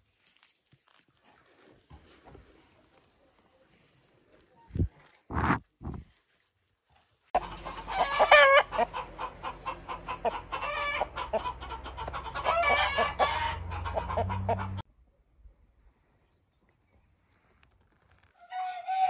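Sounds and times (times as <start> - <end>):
rooster crowing: 7.4 - 8.8, 10.6 - 11.2, 12.4 - 14.8
rooster clucking: 7.4 - 14.8.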